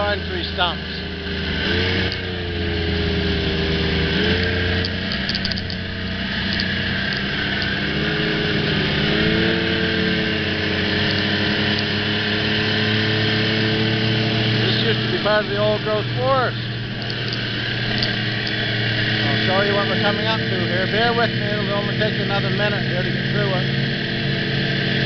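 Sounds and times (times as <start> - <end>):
vehicle engine driving on snow: 0.0 - 25.0.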